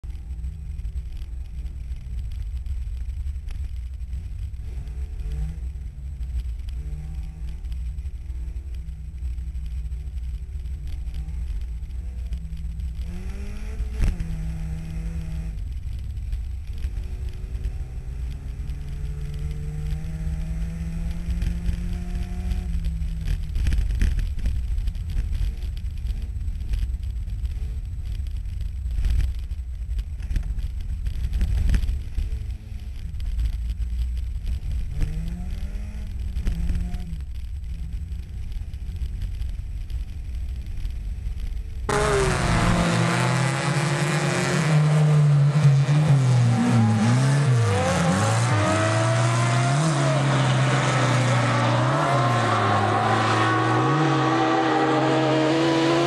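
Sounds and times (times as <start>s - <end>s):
steady low rumble: 0.0s - 55.5s
race car engine accelerating: 41.9s - 56.0s.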